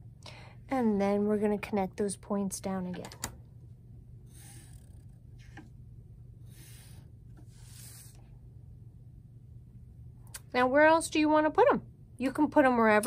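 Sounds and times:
marker scratching on paper: 6.5s - 8.2s.

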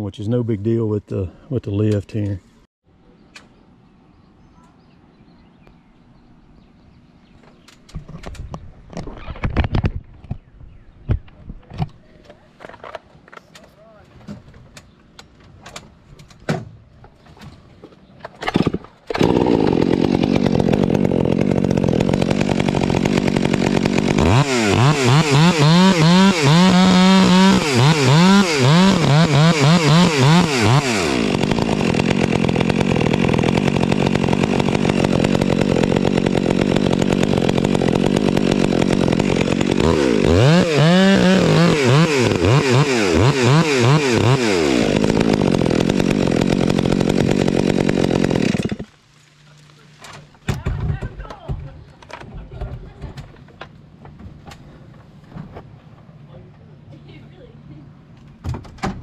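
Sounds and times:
chainsaw cutting wood: 18.4s - 49.0s.

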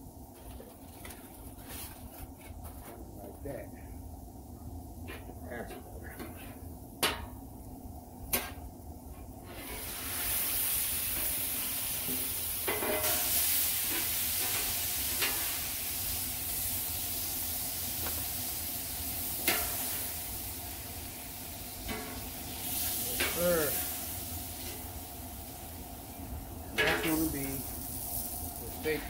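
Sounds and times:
steak sizzling on griddle: 7.4s - 29.0s.

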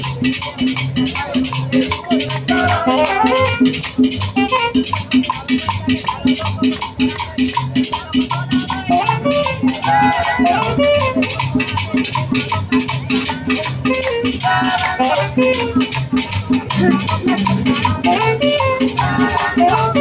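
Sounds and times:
drums: 0.0s - 20.0s
saxophone melody: 2.6s - 3.8s, 4.4s - 4.9s, 8.9s - 9.8s, 10.4s - 11.4s, 13.8s - 16.0s, 16.7s - 20.0s
bass line: 12.9s - 20.0s.

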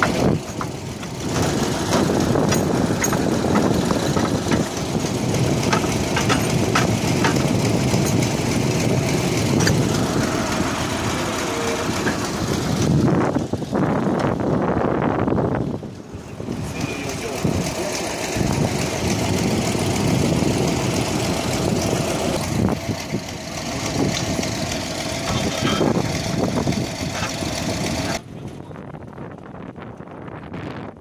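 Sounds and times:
sharp clicks and clanks: 0.0s - 10.6s, 11.4s - 13.0s, 20.9s - 28.2s
diesel engine running: 0.0s - 30.0s.

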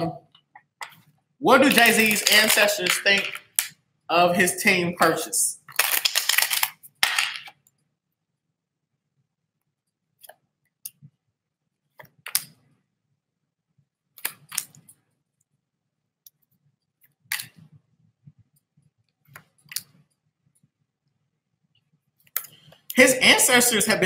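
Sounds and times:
cards being shuffled: 0.9s - 3.7s, 5.7s - 7.5s.

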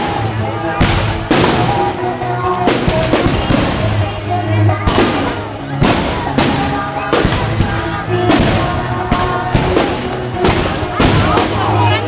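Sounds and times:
fireworks bangs: 0.0s - 12.0s
music playing: 0.0s - 12.0s.

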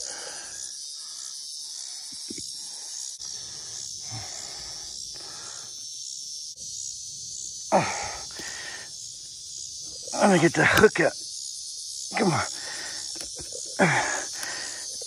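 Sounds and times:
soft breathy hissing: 0.0s - 6.0s, 7.6s - 10.4s, 12.1s - 15.0s
high insect chorus: 0.0s - 15.0s.

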